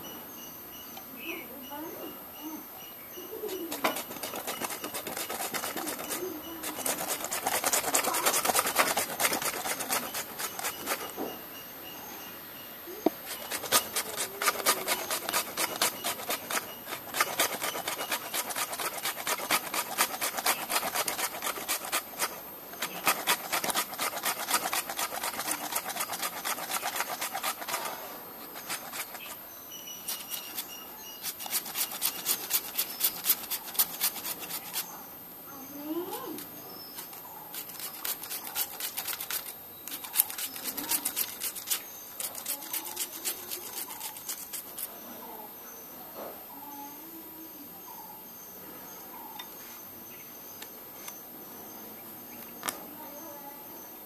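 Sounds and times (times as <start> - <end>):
potato being grated: 3.4 - 11.3, 13.1 - 34.9, 36.4 - 44.9.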